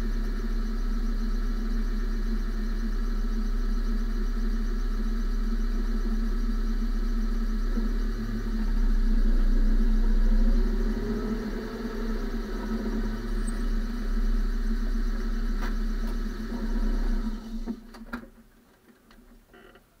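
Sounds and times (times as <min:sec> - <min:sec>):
tyre and road rumble: 0:09.4 - 0:17.7.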